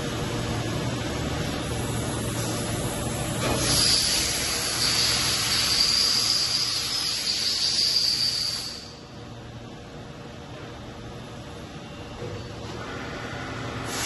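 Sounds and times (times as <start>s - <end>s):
compressed air hissing: 3.4s - 8.9s
low machine hum: 8.9s - 14.0s.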